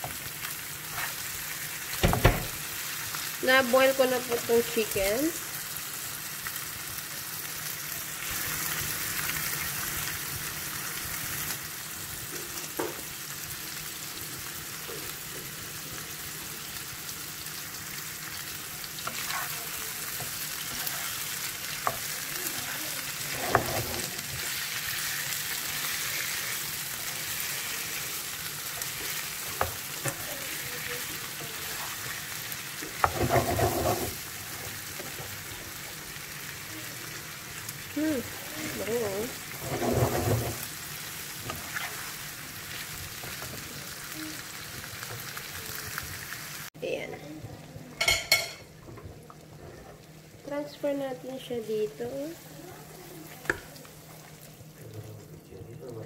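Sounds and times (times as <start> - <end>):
food sizzling in frying pan: 0.0 - 46.8, 47.4 - 56.0
spatula stirring and knocking pan: 19.0 - 24.6, 32.8 - 35.3, 39.4 - 42.1.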